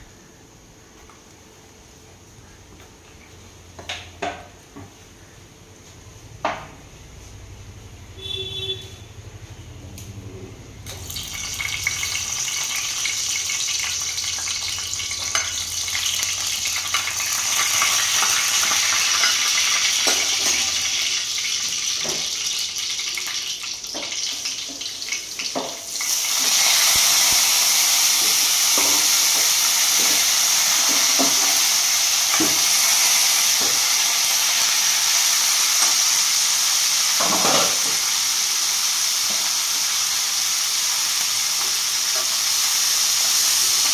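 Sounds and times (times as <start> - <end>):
chillies crackling and popping: 10.9 - 36.3
oil sizzling in frying pan: 10.9 - 43.9.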